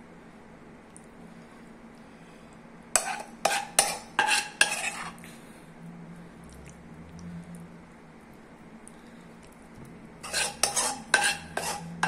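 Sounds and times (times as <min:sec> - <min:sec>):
spoon scraping a ceramic plate: 0:03.0 - 0:05.2, 0:10.2 - 0:12.0.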